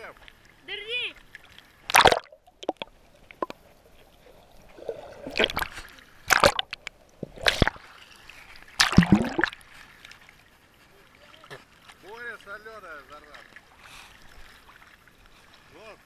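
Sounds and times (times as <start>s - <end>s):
sea water splashing: 0.0s - 16.0s.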